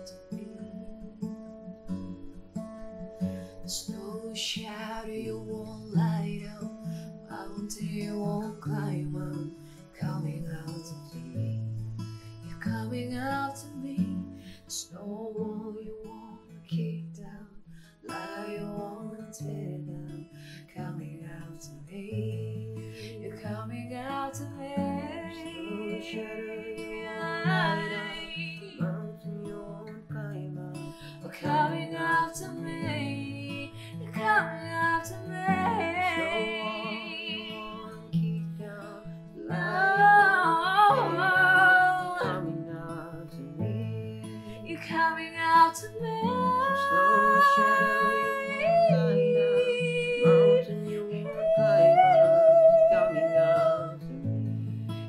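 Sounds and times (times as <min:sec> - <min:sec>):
acoustic guitar slow chords: 0:00.0 - 0:55.0
person singing or humming: 0:22.1 - 0:54.8.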